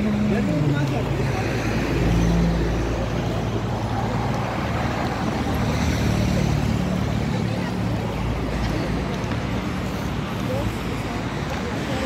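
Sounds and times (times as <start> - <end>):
traffic driving past: 0.0 - 12.0.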